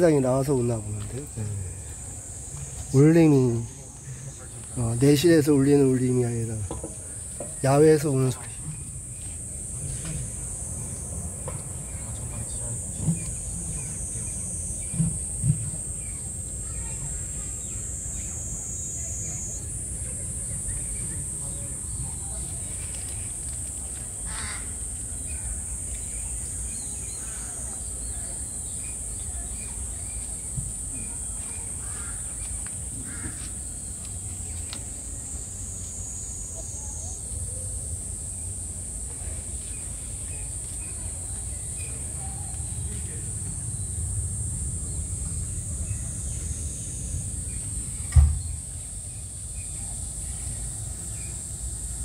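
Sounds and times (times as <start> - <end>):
high-pitched insect drone: 0.0 - 52.0
thump: 6.6 - 7.6, 48.0 - 48.7.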